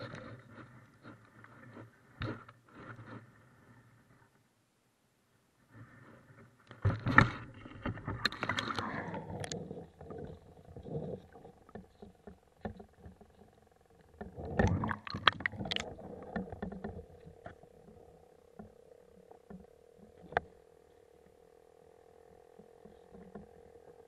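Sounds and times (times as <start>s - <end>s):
river water splashing: 14.6s - 16.7s.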